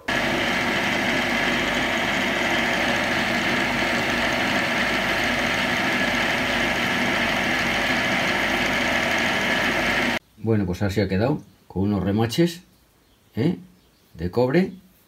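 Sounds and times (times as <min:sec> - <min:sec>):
metal lathe running: 0:00.0 - 0:10.2.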